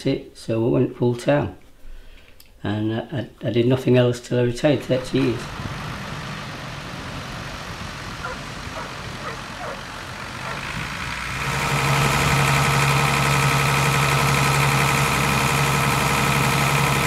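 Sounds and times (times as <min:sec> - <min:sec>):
distant boat engine: 0:04.8 - 0:17.0
loud engine idling close by: 0:05.0 - 0:17.0.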